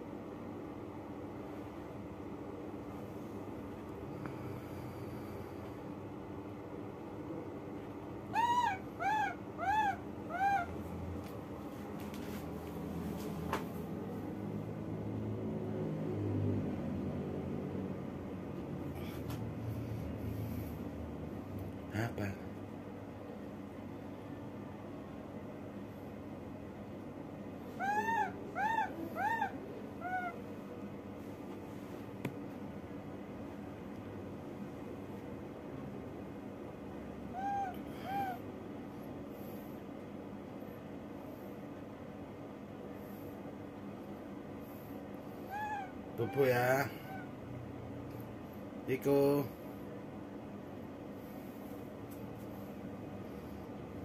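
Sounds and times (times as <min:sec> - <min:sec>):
baby monkey coo calls: 0:08.3 - 0:10.8, 0:27.7 - 0:30.5, 0:37.3 - 0:38.4, 0:45.4 - 0:47.3.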